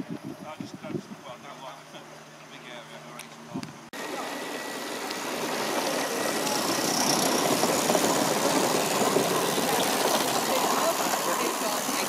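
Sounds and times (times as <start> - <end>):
model steam locomotive running: 4.0 - 12.0.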